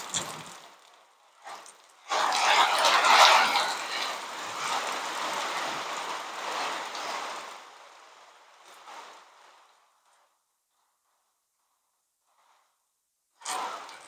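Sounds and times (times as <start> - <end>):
heavy rain: 0.0 - 10.3.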